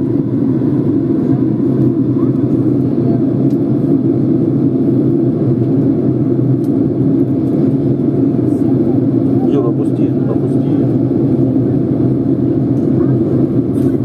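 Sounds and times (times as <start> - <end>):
airplane cabin rumble: 0.0 - 14.0.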